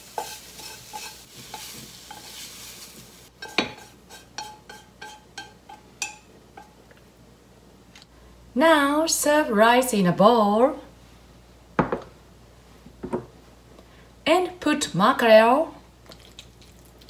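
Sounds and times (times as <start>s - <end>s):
egg sizzling faintly in pan: 0.0s - 6.7s
chopsticks scraping a frying pan: 0.0s - 6.8s.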